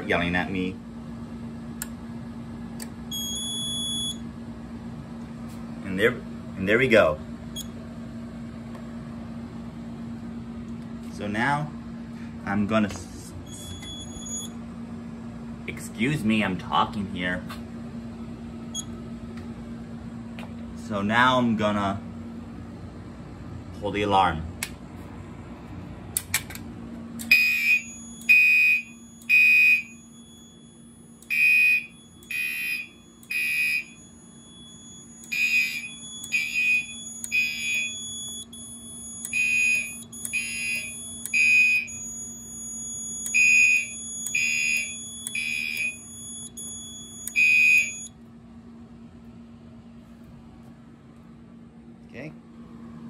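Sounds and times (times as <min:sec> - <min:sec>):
steady low hum: 0:00.0 - 0:53.0
fire alarm horns beeping: 0:03.1 - 0:04.3, 0:13.4 - 0:14.6, 0:27.2 - 0:48.2.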